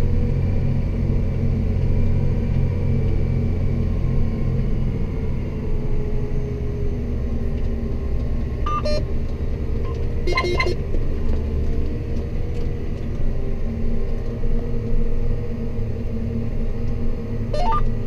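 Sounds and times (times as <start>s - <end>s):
tractor diesel engine droning: 0.0s - 18.0s
short electronic beeps: 8.7s - 9.1s, 9.8s - 10.8s, 17.6s - 18.0s.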